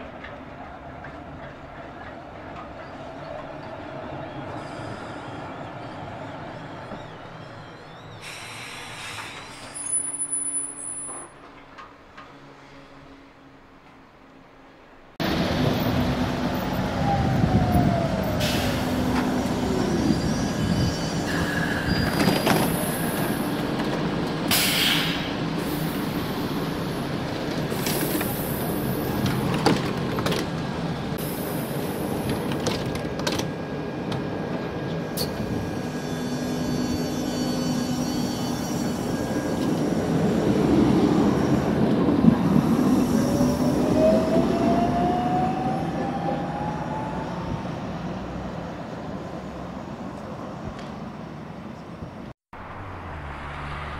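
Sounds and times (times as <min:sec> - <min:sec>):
air hisses: 0:08.2 - 0:09.9, 0:24.5 - 0:26.3
tram motor whine: 0:15.2 - 0:51.4.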